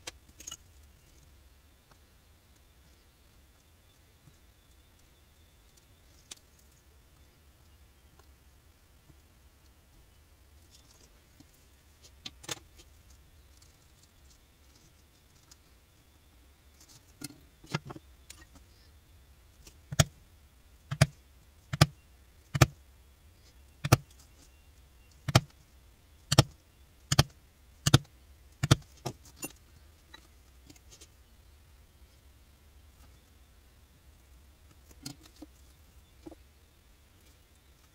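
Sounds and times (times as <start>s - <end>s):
mallet striking leather punch: 27.9s - 28.8s.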